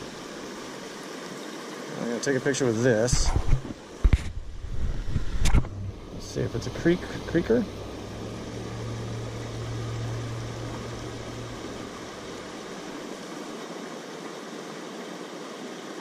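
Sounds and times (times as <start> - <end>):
low steady hum: 0.0 - 0.8, 3.1 - 13.4
flowing creek water: 0.0 - 16.0.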